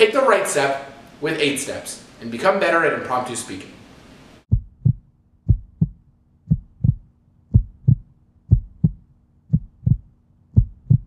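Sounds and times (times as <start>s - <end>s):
heartbeat thumps: 4.5s - 11.0s.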